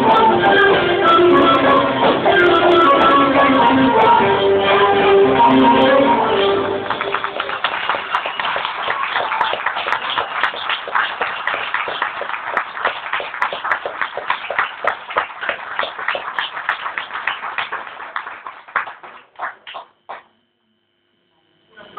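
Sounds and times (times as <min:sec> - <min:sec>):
audience applause: 0:06.6 - 0:20.3.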